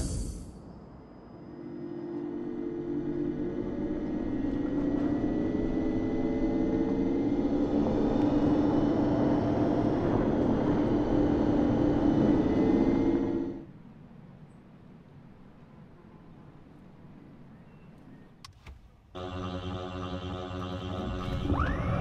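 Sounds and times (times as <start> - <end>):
synthetic vehicle warning hum: 0.0 - 13.7, 19.1 - 22.0.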